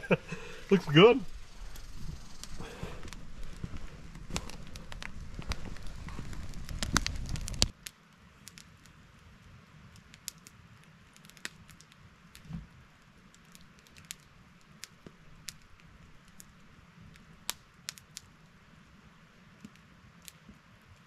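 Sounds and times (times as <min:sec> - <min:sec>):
low rumble: 0:00.0 - 0:07.7
campfire crackling: 0:00.0 - 0:21.0
sharp pops and snaps: 0:01.7 - 0:09.0, 0:09.9 - 0:12.6, 0:13.3 - 0:18.4.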